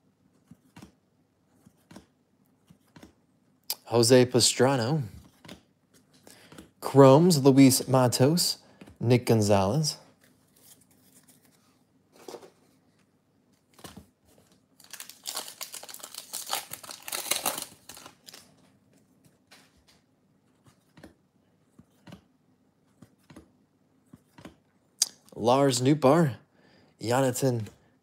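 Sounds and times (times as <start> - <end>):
cards clicking and rustling: 13.6 - 18.6
plastic wrapper tearing and crinkling: 14.8 - 18.5.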